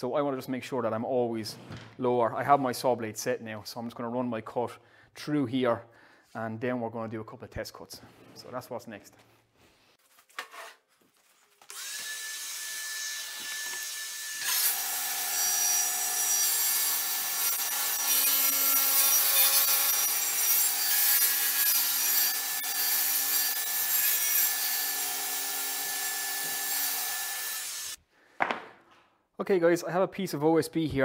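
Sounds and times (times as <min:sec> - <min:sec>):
saw blade cutting chipboard: 0:11.6 - 0:28.0
table saw whine: 0:11.7 - 0:28.0.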